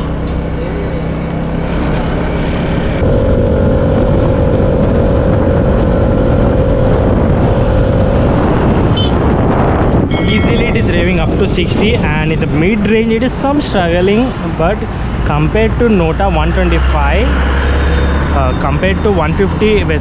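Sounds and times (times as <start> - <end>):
scooter engine running: 0.0 - 8.3
wind rush on microphone: 2.1 - 20.0.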